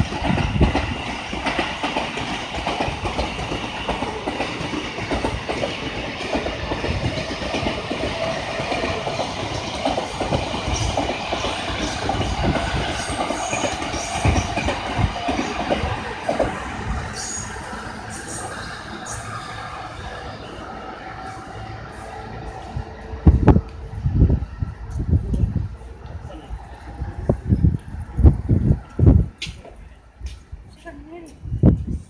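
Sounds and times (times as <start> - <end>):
wheels clacking over rail joints: 0.0 - 19.7
train rolling rumble: 0.0 - 32.0.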